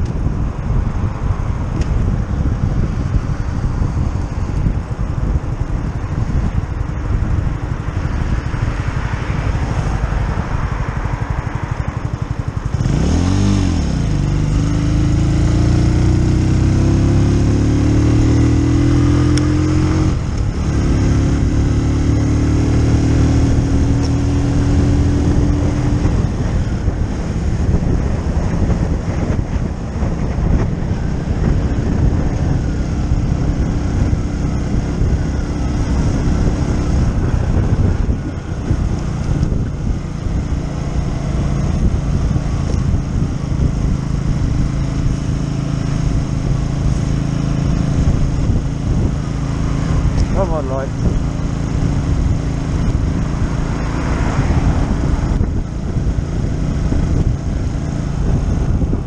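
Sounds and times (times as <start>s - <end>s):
motorcycle engine accelerating: 0.0s - 59.0s
wind and road noise: 0.0s - 59.0s.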